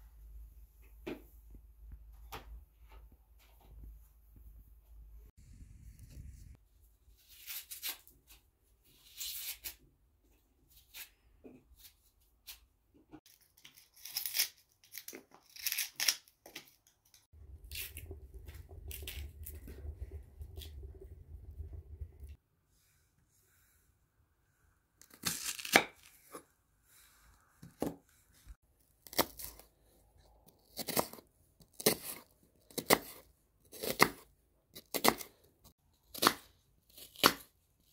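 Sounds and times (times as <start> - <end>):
onion skin being peeled: 7.1 - 9.9, 13.3 - 20.0, 25.0 - 26.4, 28.9 - 29.7, 30.4 - 37.9
wood stove fire rumbling: 17.4 - 22.4.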